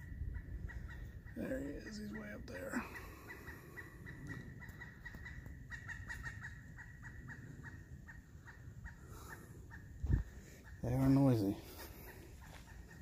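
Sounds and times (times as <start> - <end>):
woodpecker calling: 0.0 - 13.0.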